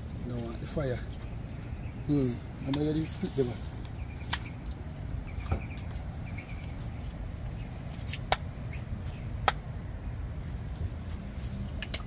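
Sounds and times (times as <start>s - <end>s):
wood fire crackling: 0.0s - 7.2s
bird chirps: 1.0s - 7.8s, 8.6s - 11.0s.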